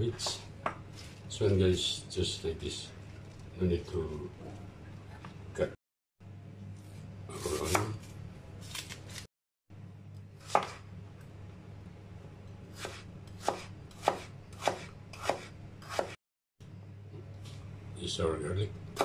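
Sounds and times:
knife chopping on plastic board: 0:12.8 - 0:16.2.

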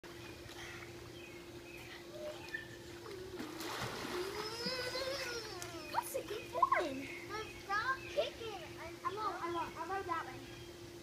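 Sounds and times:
splash into pool: 0:03.0 - 0:05.8
child crying: 0:04.1 - 0:06.0.

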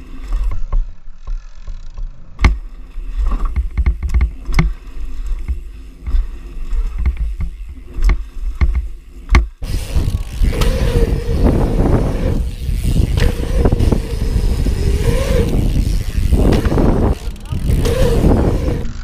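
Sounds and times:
bike clicks: 0:00.0 - 0:19.0
bike tyres rolling on concrete: 0:00.0 - 0:19.0
sharp knocks from bike: 0:02.0 - 0:04.8, 0:06.9 - 0:11.9, 0:12.8 - 0:14.0, 0:15.6 - 0:18.6.

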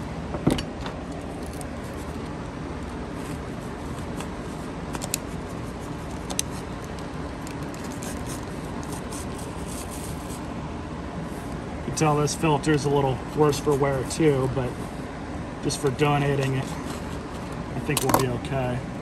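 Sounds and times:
steady background noise: 0:00.0 - 0:19.0
knife blade crackling in foam: 0:05.0 - 0:10.4.

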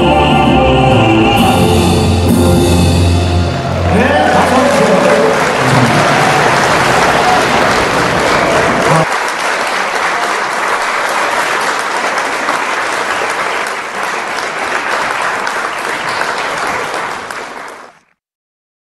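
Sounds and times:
audience applauding: 0:03.2 - 0:18.1.

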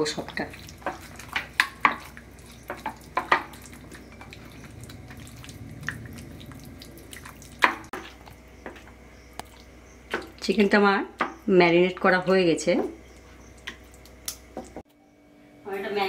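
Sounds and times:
wet squelching of meat in marinade: 0:00.0 - 0:08.6.

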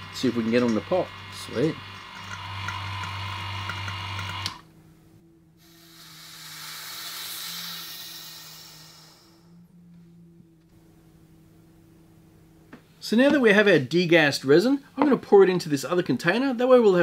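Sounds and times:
electric vacuum pump humming: 0:00.0 - 0:13.4
air hissing through release valve: 0:05.6 - 0:09.6.

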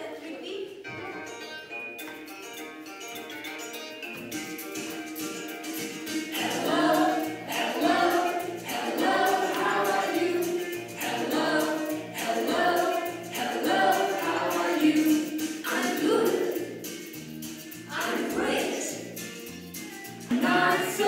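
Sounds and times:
instrumental backing with bass: 0:00.9 - 0:21.0
children's song with voices singing: 0:05.9 - 0:21.0.

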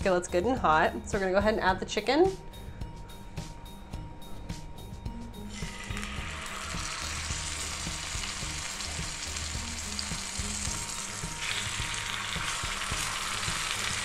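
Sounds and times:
chicken sizzling in hot oil: 0:05.5 - 0:14.0.

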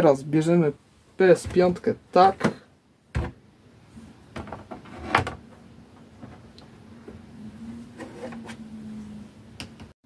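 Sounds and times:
faint steady hum: 0:00.0 - 0:09.9
plastic knocks and rubbing: 0:04.3 - 0:06.5.

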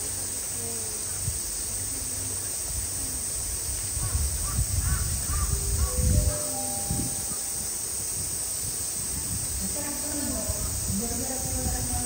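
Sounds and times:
steady outdoor hiss: 0:00.0 - 0:12.0
crows cawing: 0:04.0 - 0:06.5.

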